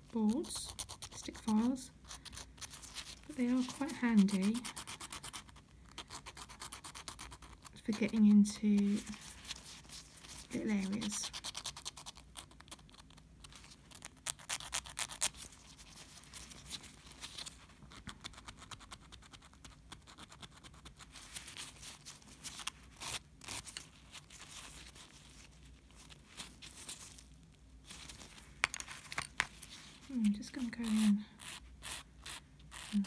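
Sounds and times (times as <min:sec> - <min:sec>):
nail file rasping: 0:00.3 - 0:09.1, 0:10.5 - 0:13.1, 0:14.0 - 0:15.3, 0:30.6 - 0:33.0.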